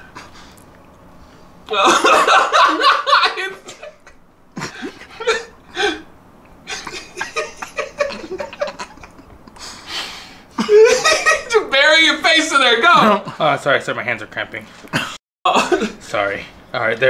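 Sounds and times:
people laughing: 1.7 - 5.5, 6.7 - 9.7, 10.6 - 11.7.

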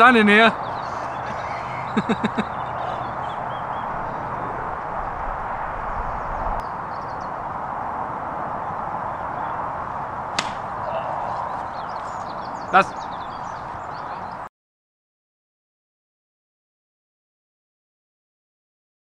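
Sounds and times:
outdoor background noise: 0.0 - 14.5
golf club striking ball: 10.3 - 10.9.

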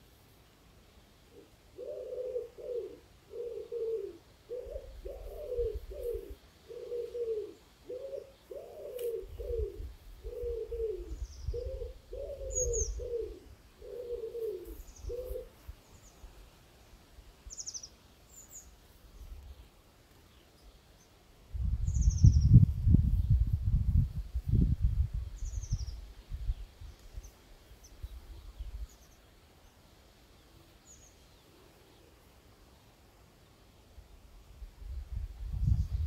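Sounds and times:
pigeon cooing: 1.4 - 15.6
small birds chirping: 1.4 - 21.2, 21.8 - 22.6, 25.3 - 33.6.

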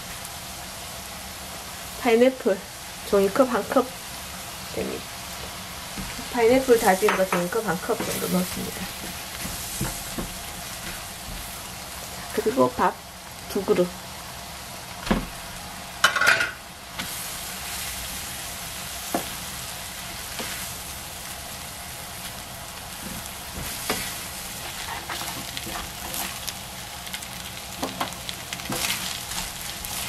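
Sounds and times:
food sizzling in a frying pan: 0.0 - 30.0
spatula scraping a pan: 6.1 - 11.6, 20.1 - 20.8, 23.0 - 26.5, 27.8 - 30.0.

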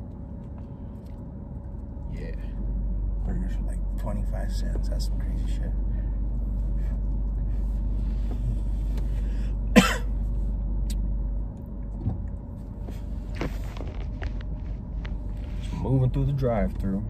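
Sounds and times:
engine and road rumble in car: 0.0 - 17.0
person coughing: 9.7 - 10.1.

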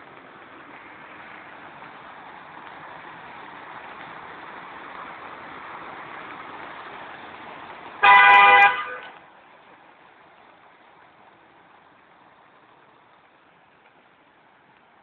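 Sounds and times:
car horn honk: 8.0 - 9.2.

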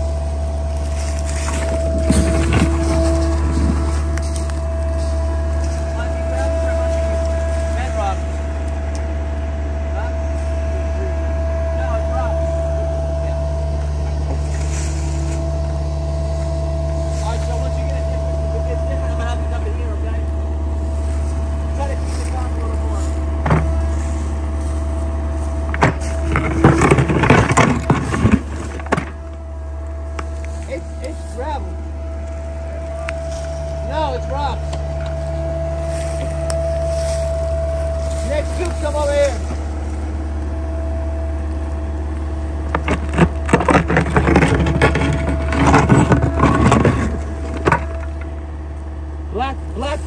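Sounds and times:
bucket cracking and scraping soil: 0.0 - 8.3, 21.0 - 31.6, 34.6 - 40.4, 41.3 - 48.5
excavator engine running: 0.0 - 50.0
bucket scraping through soil: 0.7 - 4.4, 26.0 - 29.2, 42.8 - 48.1.

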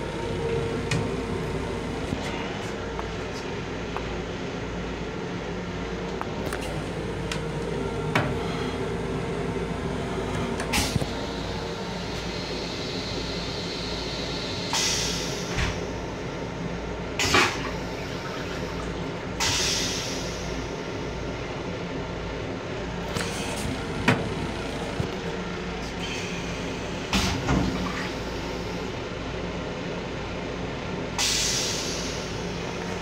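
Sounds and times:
train rumble: 0.0 - 21.7, 22.6 - 28.7
toilet flushing whooshes: 22.8 - 25.2.

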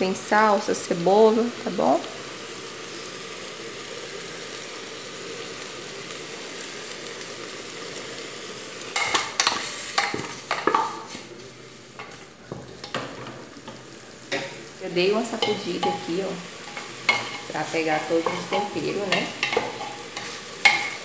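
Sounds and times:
chicken sizzling in pot: 0.0 - 21.0
pot scraping on stove grate: 9.0 - 21.0.

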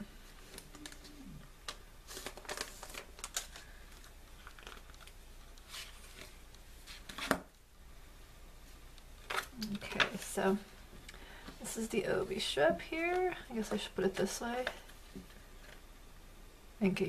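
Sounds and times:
packaging rustling and crinkling: 0.2 - 7.4.

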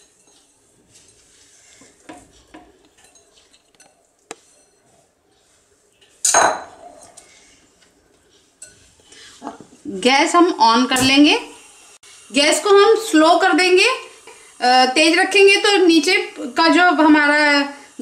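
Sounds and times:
kitchenware clinking: 0.0 - 4.9, 6.0 - 7.3, 8.5 - 9.0.

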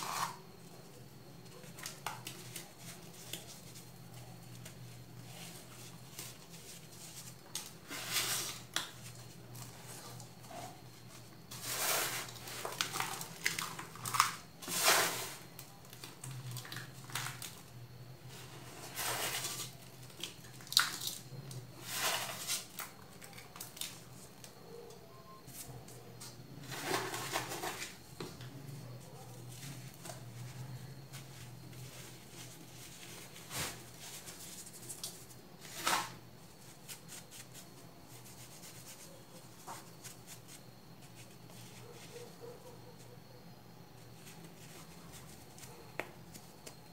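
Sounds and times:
baking soda crunching: 11.5 - 17.6.

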